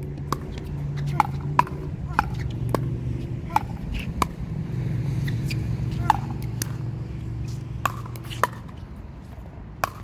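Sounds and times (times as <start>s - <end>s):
steady low hum: 0.0s - 10.0s
paddles hitting plastic ball: 7.8s - 8.8s, 9.8s - 10.0s.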